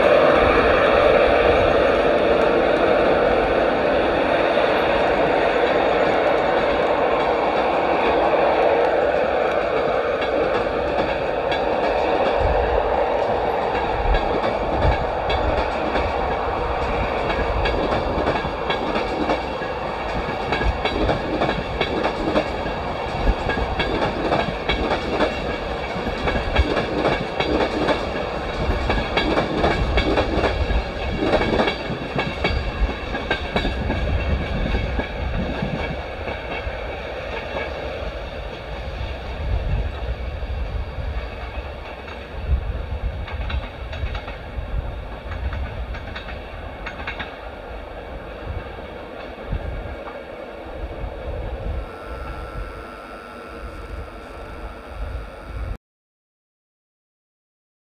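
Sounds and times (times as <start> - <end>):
train wheels clattering over rail joints: 5.2 - 40.1, 41.0 - 50.2.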